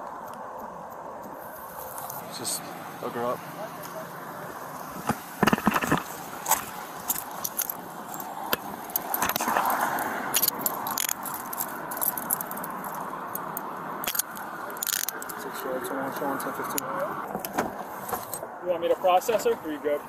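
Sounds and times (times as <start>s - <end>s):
handcuffs clicking and jingling: 6.4s - 15.4s.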